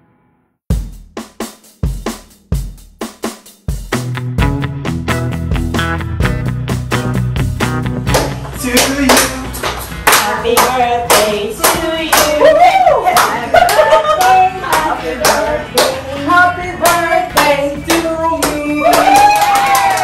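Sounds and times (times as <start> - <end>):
rhythmic hand clapping: 7.7 - 20.0
voices singing: 10.2 - 19.3.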